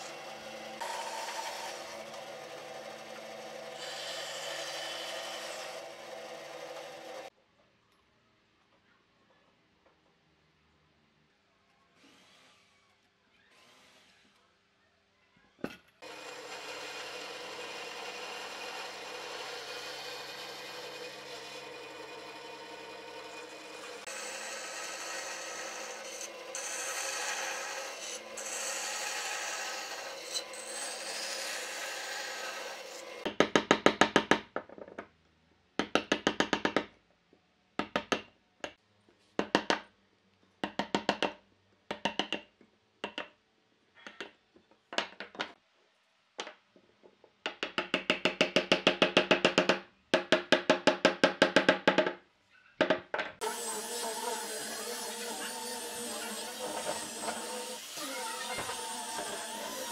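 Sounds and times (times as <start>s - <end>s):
angle grinder sanding wood: 0.0s - 7.3s, 16.0s - 33.3s, 53.4s - 59.9s
band saw cutting wood: 0.0s - 7.3s, 16.0s - 33.3s, 53.4s - 59.9s.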